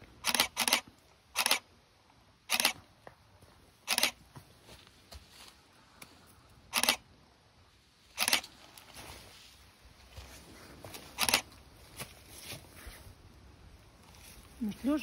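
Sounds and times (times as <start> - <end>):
camera shutter clicks: 0.2 - 0.8, 1.4 - 1.7, 2.5 - 2.8, 3.9 - 4.2, 6.7 - 7.0, 8.2 - 8.5, 11.2 - 11.5.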